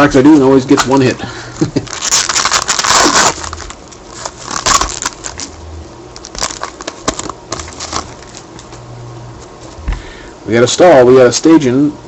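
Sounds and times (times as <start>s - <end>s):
foil wrapper crinkling: 1.6s - 8.8s.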